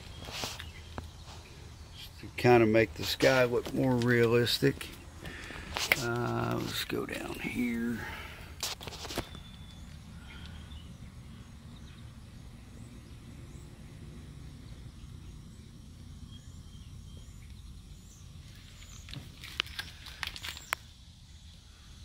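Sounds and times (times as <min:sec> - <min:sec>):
steady low rumble: 0:00.0 - 0:08.6, 0:09.4 - 0:20.3
faint bird chirps: 0:09.2 - 0:13.8.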